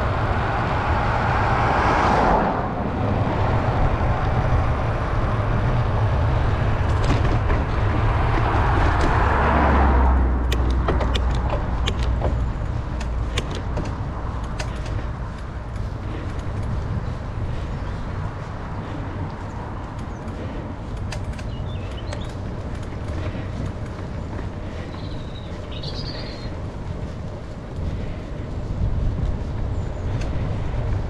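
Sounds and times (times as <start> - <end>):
car passing by: 0.0 - 16.4
low road rumble: 0.0 - 31.0
sharp clicks and ticks: 10.1 - 16.9, 19.2 - 25.2.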